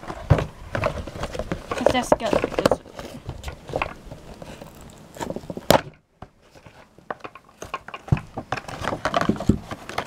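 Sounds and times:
plastic and cardboard crinkling: 0:00.0 - 0:10.0.

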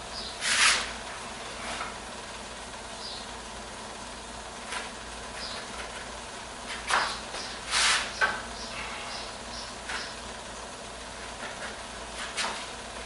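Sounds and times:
flip-flop footsteps on concrete: 0:04.7 - 0:08.5
wooden studs scraping concrete: 0:06.7 - 0:08.4.

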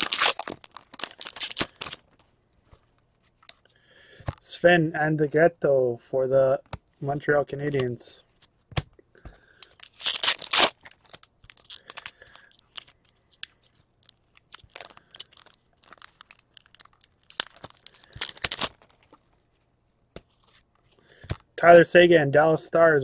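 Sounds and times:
foil pack tearing: 0:00.0 - 0:02.0, 0:09.6 - 0:12.9, 0:14.4 - 0:18.9
wrapper crinkling: 0:00.0 - 0:02.3, 0:09.6 - 0:19.4.

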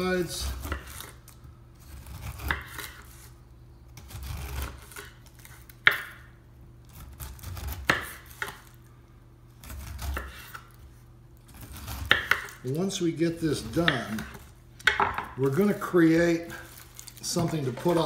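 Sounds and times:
knife scraping through peel: 0:00.0 - 0:03.4, 0:04.0 - 0:06.1, 0:06.8 - 0:08.8, 0:09.6 - 0:14.6.

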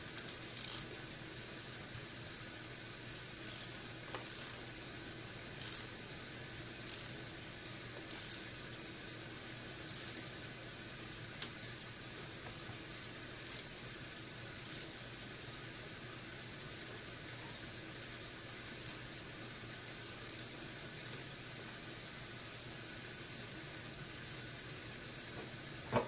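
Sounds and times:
faint steady hum: 0:00.0 - 0:26.0
ratchet tool clicking: 0:00.1 - 0:00.9, 0:03.4 - 0:04.6, 0:05.6 - 0:05.9, 0:06.9 - 0:07.2, 0:08.1 - 0:08.4, 0:10.0 - 0:10.3, 0:13.4 - 0:13.7, 0:14.6 - 0:14.9, 0:18.8 - 0:19.1, 0:20.3 - 0:20.5.

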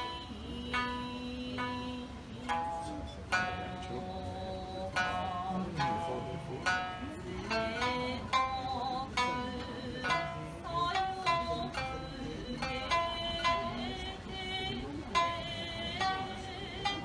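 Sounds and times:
plucked string instrument notes: 0:00.0 - 0:17.0.

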